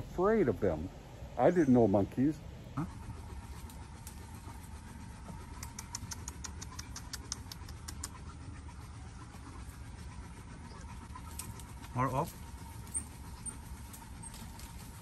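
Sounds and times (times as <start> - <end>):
low steady rumble: 0.0 - 15.0
small animal chirping: 5.4 - 9.1.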